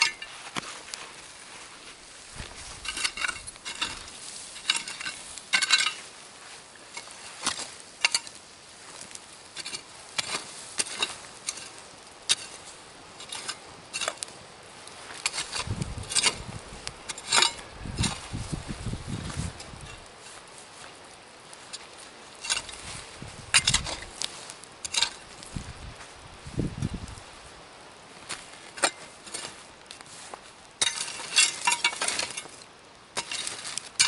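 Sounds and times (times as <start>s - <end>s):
shovel scraping through ash: 0.0s - 25.6s, 28.2s - 34.0s
soil rumbling into pit: 2.2s - 20.4s, 22.4s - 27.2s, 30.8s - 34.0s.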